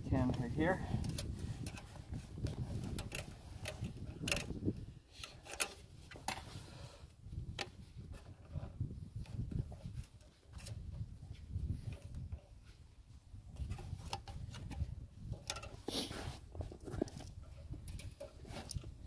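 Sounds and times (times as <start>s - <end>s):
wire clicking and scraping: 0.9s - 6.8s, 7.5s - 11.0s, 13.5s - 19.0s.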